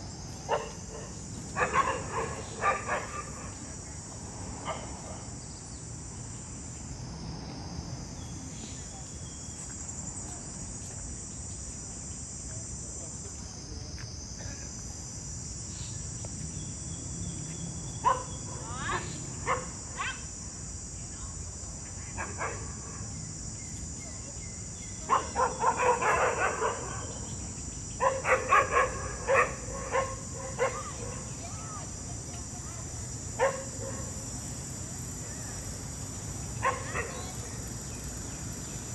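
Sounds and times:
high-pitched insect drone: 0.0 - 38.9
dogs barking: 0.5 - 3.6, 18.0 - 18.4, 19.4 - 20.2, 22.2 - 22.8, 25.1 - 27.3, 28.0 - 31.4, 33.4 - 34.2, 36.6 - 37.4.

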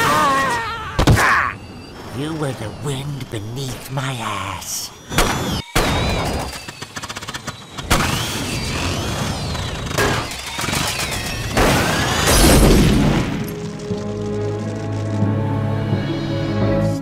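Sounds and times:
wavering whine: 0.1 - 12.6
crashes and explosions: 3.6 - 15.2
rapid crackling: 13.1 - 15.3.

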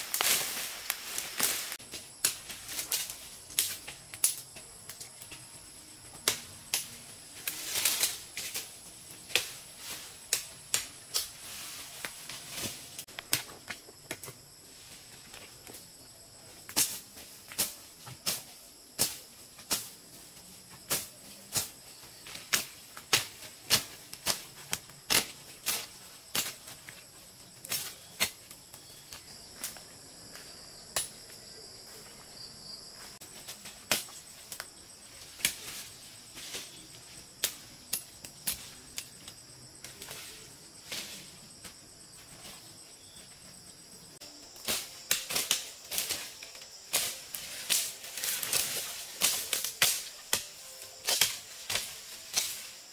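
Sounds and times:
footsteps through undergrowth: 0.0 - 5.5, 44.2 - 52.9
insects droning: 0.0 - 52.9.

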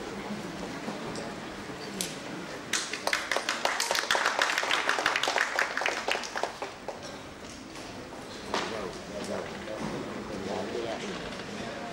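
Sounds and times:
audience applauding: 2.7 - 7.0.

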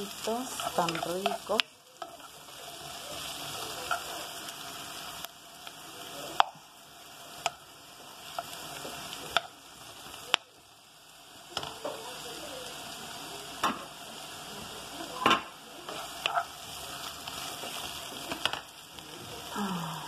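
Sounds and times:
zucchini sizzling in a frying pan: 0.0 - 20.0
utensil clicking against pan: 0.6 - 2.3.

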